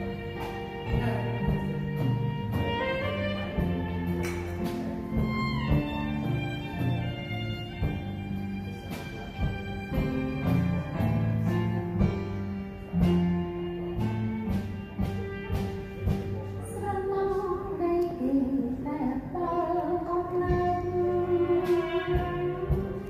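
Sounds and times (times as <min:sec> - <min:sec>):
live band playing: 0:00.0 - 0:23.0
woman singing: 0:16.6 - 0:22.8.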